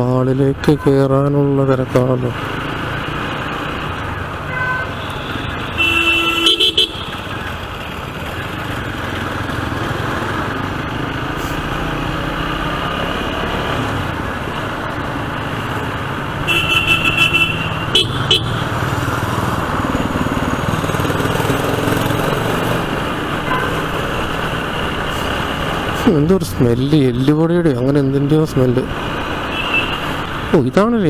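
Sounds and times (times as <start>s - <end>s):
city traffic: 0.0s - 31.0s
motorcycle engine: 1.9s - 30.7s
vehicle horn honking: 4.5s - 7.2s, 16.4s - 18.6s, 23.5s - 23.8s, 29.5s - 30.0s.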